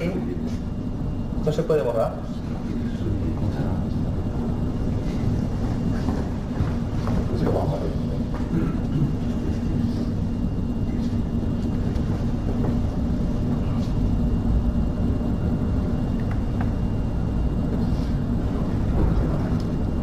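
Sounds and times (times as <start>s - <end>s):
faint hum: 0.0s - 20.0s
low room rumble: 0.0s - 20.0s.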